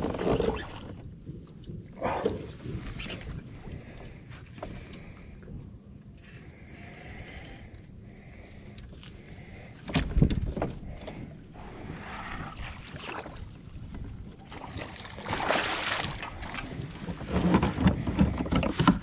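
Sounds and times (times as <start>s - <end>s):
fish thrashing and splashing: 11.7s - 19.0s.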